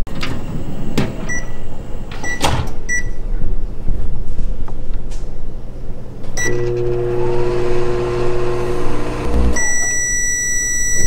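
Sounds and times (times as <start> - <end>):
long microwave beep: 1.3 - 1.6, 2.2 - 3.2, 6.4 - 7.2, 9.5 - 11.0
microwave beep: 1.3 - 1.6, 2.2 - 3.2, 6.4 - 8.2, 9.5 - 11.0
microwave humming: 6.3 - 11.0.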